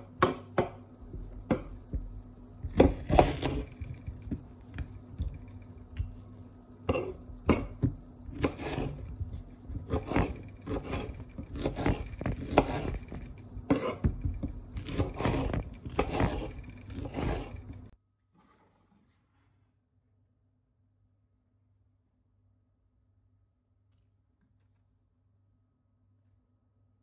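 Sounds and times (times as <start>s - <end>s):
knife chopping on wooden board: 0.0s - 6.2s, 6.9s - 17.6s
knife scraping: 2.6s - 17.9s.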